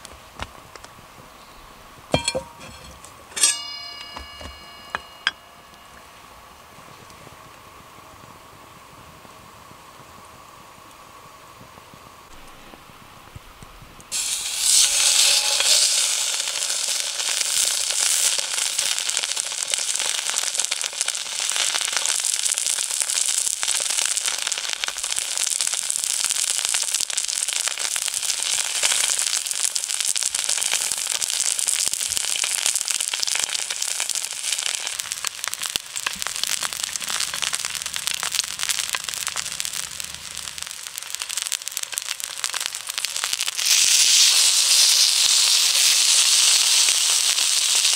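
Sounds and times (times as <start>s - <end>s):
steak sizzling in frying pan: 14.1s - 47.9s.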